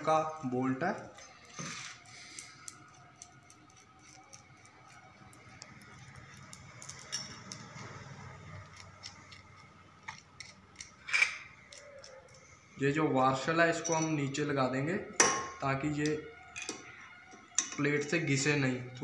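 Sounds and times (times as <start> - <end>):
metal clinks of bolt and nut: 0.9 - 8.0, 8.6 - 12.4, 13.7 - 14.4, 15.2 - 17.9.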